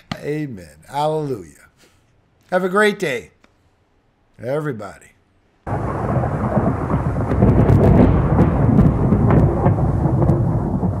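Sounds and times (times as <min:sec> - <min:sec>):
rain: 0:05.6 - 0:11.0
sharp crackles: 0:05.7 - 0:11.0
thunder rumbling: 0:05.7 - 0:11.0.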